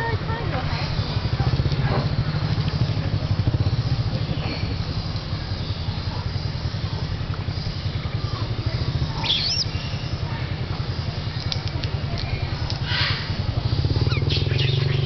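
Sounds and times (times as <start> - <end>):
small engine idling: 0.0 - 15.0
high chirp: 8.9 - 10.2, 13.8 - 15.0
faint clicks: 11.4 - 12.9.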